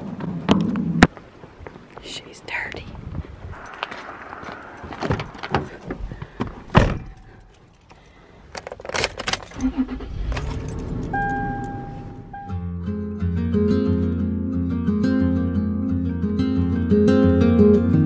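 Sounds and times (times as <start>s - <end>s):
steady tone: 3.5s - 7.5s, 9.9s - 13.4s
keys jangling: 3.6s - 6.1s, 7.0s - 11.8s
car engine running: 9.5s - 13.1s.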